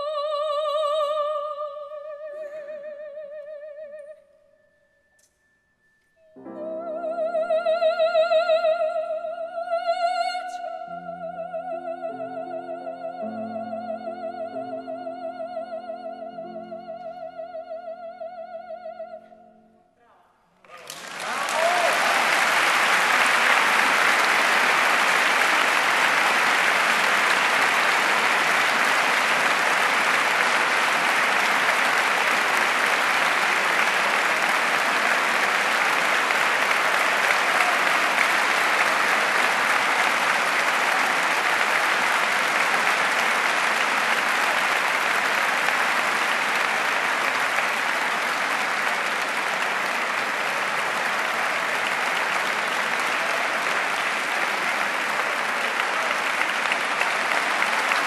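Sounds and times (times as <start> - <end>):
audience applauding: 20.6 - 58.0.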